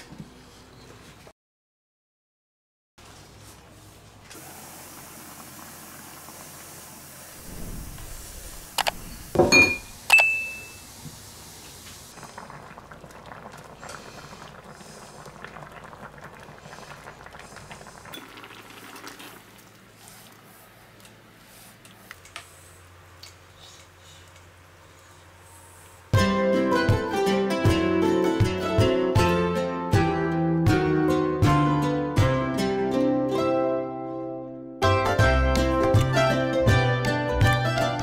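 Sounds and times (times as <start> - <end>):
curry simmering with a hiss: 3.3 - 9.3, 10.7 - 26.2.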